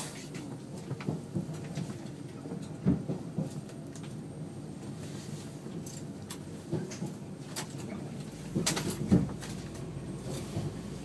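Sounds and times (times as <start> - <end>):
train knocks and rattles: 0.0 - 11.0
electric train humming: 8.1 - 11.0.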